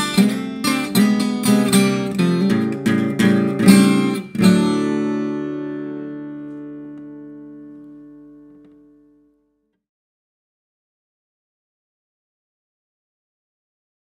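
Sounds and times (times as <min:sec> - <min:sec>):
acoustic guitar strumming: 0:00.0 - 0:09.3.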